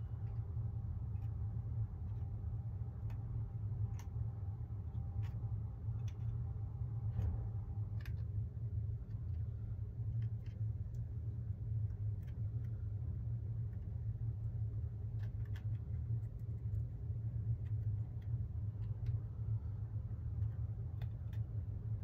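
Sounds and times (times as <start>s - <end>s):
faint clicks and taps: 0.0s - 11.2s
steady low hum: 0.0s - 22.0s.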